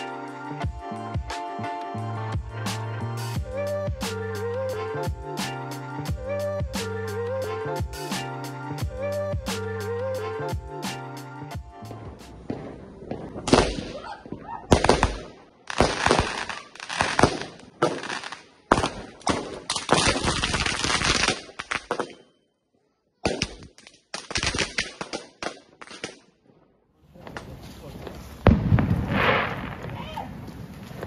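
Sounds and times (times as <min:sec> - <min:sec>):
fireworks banging and crackling: 0:12.0 - 0:22.3, 0:23.2 - 0:26.3, 0:27.1 - 0:31.0.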